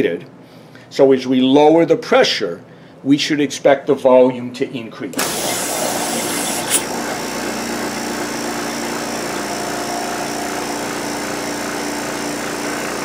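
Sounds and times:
vacuum pump humming: 5.1s - 13.0s.

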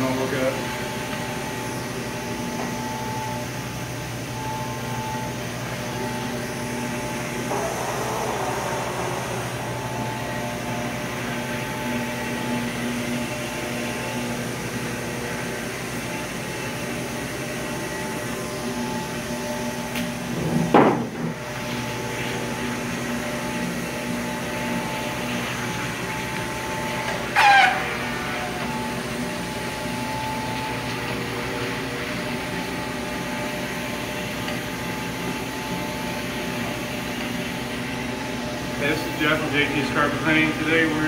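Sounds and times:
floor scrubbing machine humming: 0.0s - 41.0s.

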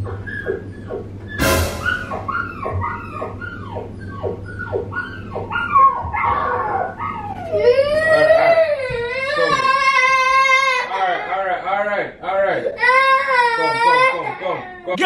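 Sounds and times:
small dog whimpering and yipping: 0.0s - 9.6s
sharp knock: 1.4s - 2.3s
child crying: 6.4s - 11.3s, 12.7s - 14.9s.

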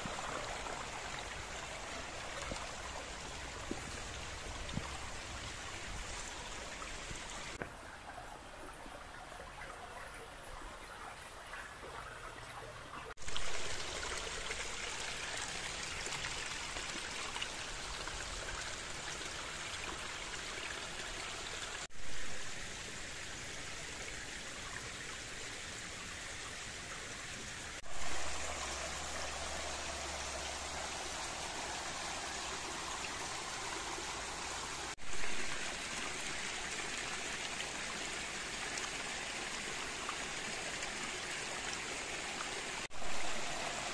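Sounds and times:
stream rushing over rocks: 0.0s - 7.8s, 27.7s - 43.9s.

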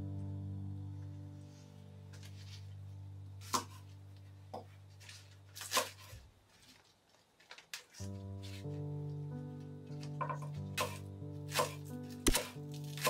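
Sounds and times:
knife striking cutting board: 10.2s - 13.0s.

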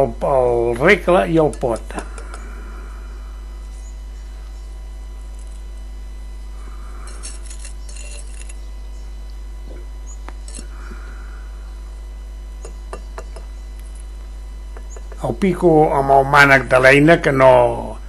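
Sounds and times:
low electrical hum: 0.0s - 18.0s
trowel scraping on brick: 7.1s - 8.6s.

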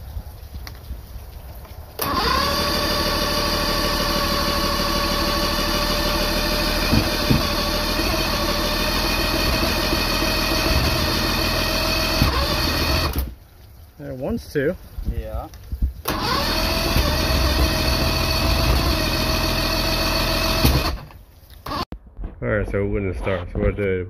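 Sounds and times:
outboard engine electric starter whir: 2.0s - 13.4s, 16.0s - 21.9s.

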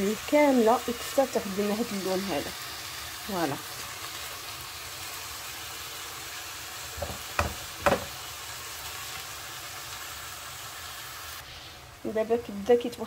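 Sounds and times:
meat sizzling in a frying pan: 0.0s - 13.0s
spoon knocking against pan: 7.0s - 8.2s.

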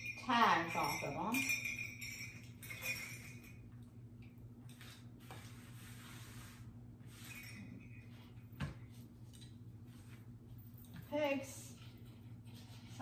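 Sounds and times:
light clinks of small bells: 0.0s - 4.0s, 7.1s - 8.6s.

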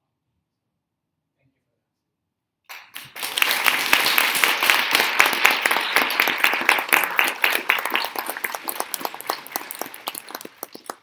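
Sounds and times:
audience applauding: 2.7s - 11.0s.

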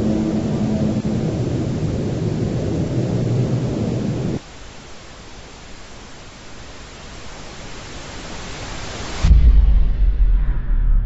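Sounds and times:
loud low rumbling drone: 0.0s - 4.4s
steady hiss: 0.0s - 9.7s.

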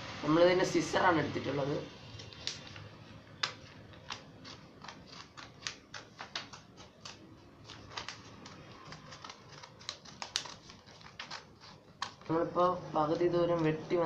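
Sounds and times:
scissors snipping paper: 2.2s - 12.5s.

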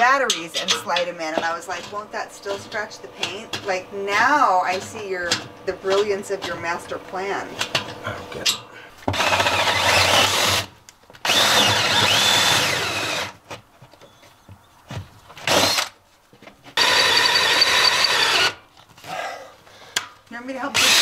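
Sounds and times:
power drill boring into wood: 9.1s - 13.4s, 15.5s - 15.9s, 16.8s - 18.6s, 20.8s - 21.0s.

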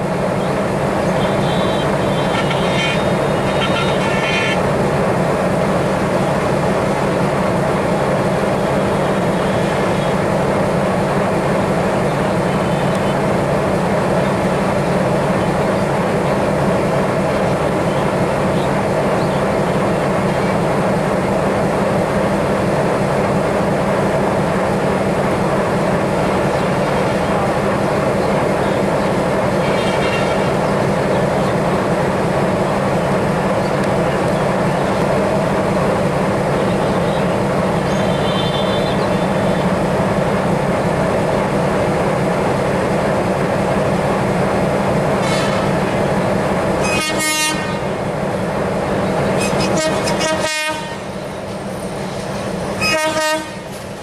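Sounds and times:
diesel locomotive engine drone: 0.0s - 54.0s
train running noise: 0.0s - 54.0s.

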